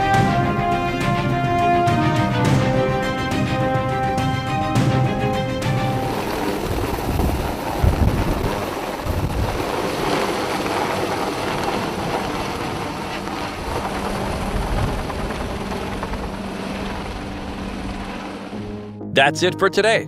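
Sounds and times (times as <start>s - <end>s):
helicopter rotor noise: 0.0s - 18.6s
wind buffeting microphone: 6.1s - 18.5s.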